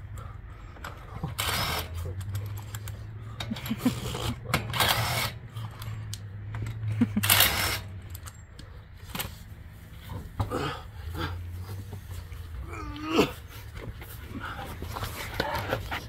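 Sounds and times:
impact wrench spinning lug nuts: 0.8s - 8.4s.

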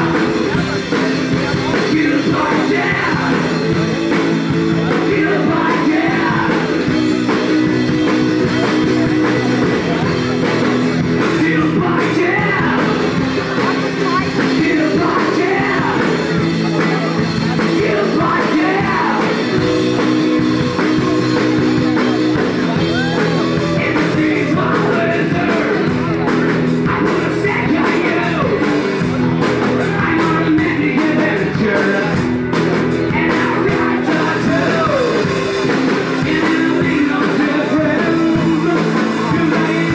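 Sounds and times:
person singing and shouting: 0.0s - 32.3s, 33.0s - 39.9s
live rock band playing: 0.0s - 39.9s.

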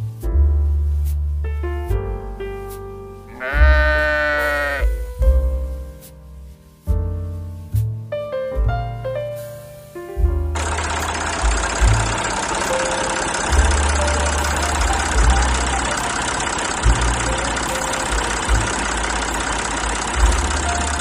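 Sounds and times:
tractor engine idling: 10.6s - 21.0s.

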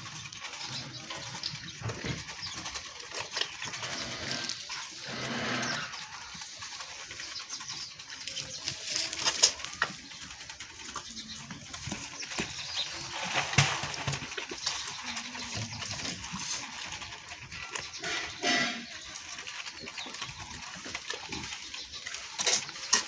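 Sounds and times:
calves sucking and slurping: 0.0s - 10.3s.

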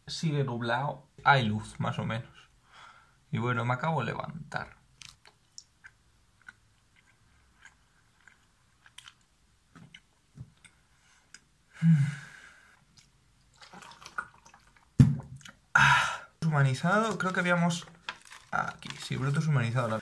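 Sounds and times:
person chewing toast: 5.0s - 11.5s.

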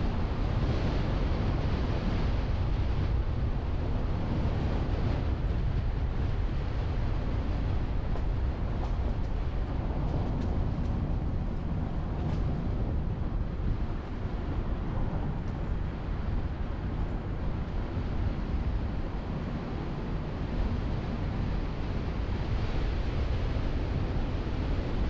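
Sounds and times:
road and tyre noise: 0.0s - 25.0s
wind rushing over microphone: 0.0s - 25.0s.

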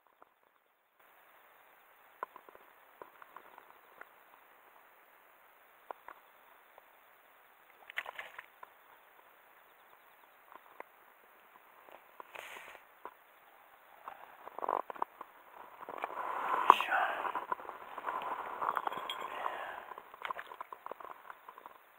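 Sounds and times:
faint hiss: 1.0s - 21.9s
small ticks and clicks: 2.0s - 4.9s, 5.7s - 7.0s, 7.6s - 16.2s, 19.9s - 21.9s
rustling: 11.8s - 13.2s, 13.9s - 21.9s.

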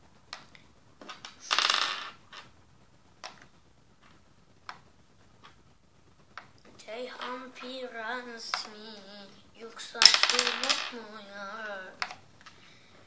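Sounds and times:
chess pieces clicking on board: 0.4s - 2.5s, 8.4s - 8.8s, 10.0s - 11.2s, 12.0s - 12.6s.

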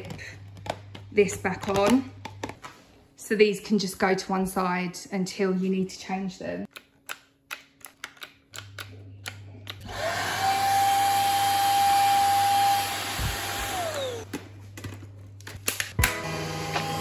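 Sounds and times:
plastic handling clicks: 6.7s - 9.8s
vacuum motor whine: 9.8s - 14.3s, 16.0s - 17.0s.

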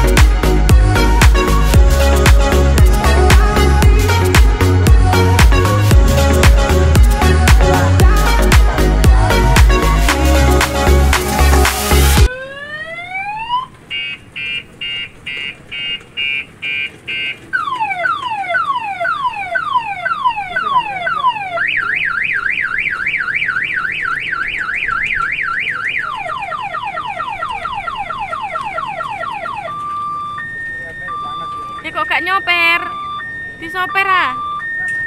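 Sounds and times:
electronic alarm siren: 12.1s - 35.0s.

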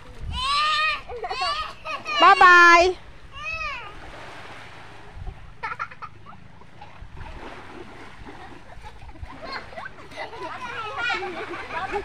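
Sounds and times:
small waves washing ashore: 0.0s - 12.0s
child's voice: 0.2s - 2.5s, 3.4s - 4.0s.

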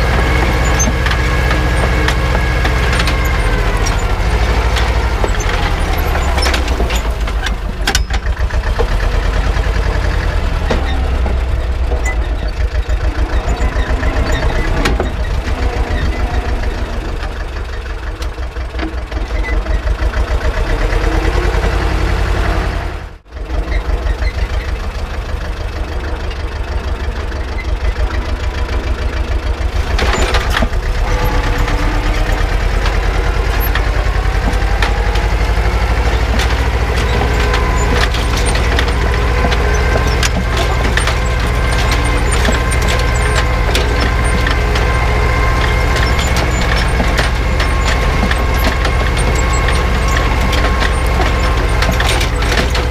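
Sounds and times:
tractor engine running: 0.0s - 52.9s.

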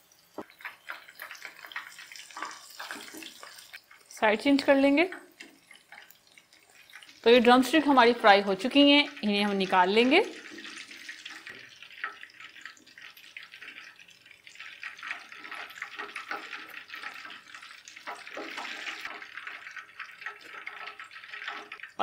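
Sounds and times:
deep-frying oil sizzling and crackling: 0.0s - 22.0s.

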